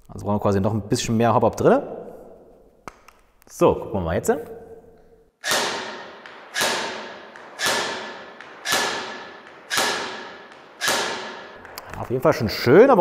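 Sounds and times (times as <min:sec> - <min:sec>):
airsoft shots with echo: 0:05.4 - 0:11.6.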